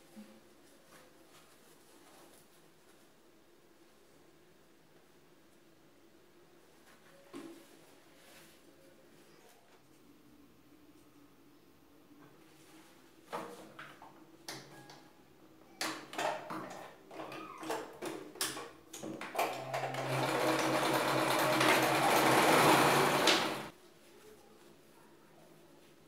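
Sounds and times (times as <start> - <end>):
sewing machine stitching: 19.3 - 23.7.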